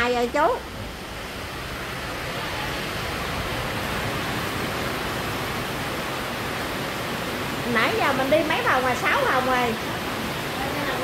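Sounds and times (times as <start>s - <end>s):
steady rushing hiss: 0.0s - 11.0s.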